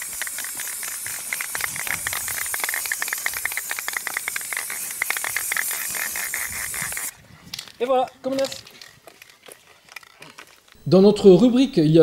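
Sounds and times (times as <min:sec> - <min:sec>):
aerosol spray can hissing: 0:00.0 - 0:07.1.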